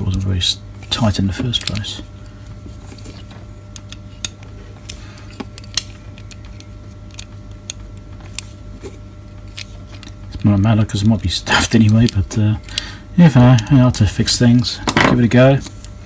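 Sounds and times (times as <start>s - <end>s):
steady low hum: 0.0s - 16.0s
small clicks of screwdriver and parts: 1.5s - 2.0s, 3.7s - 8.5s, 11.7s - 12.9s.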